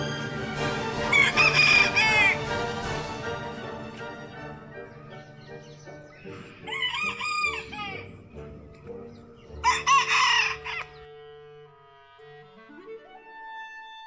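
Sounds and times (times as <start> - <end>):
music with long held notes: 0.0 - 14.0
rooster crowing: 0.8 - 2.6, 6.3 - 8.2, 9.6 - 11.1.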